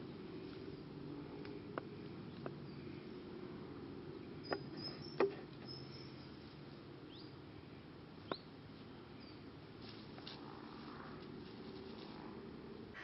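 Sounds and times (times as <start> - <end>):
low steady hiss: 0.0 - 13.0.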